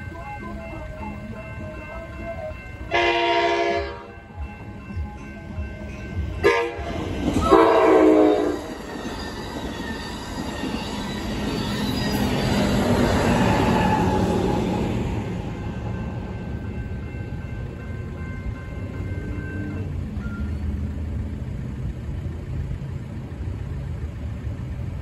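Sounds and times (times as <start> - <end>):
train rumbling: 0.0 - 25.0
train horn blasts: 2.9 - 4.3, 6.4 - 8.8.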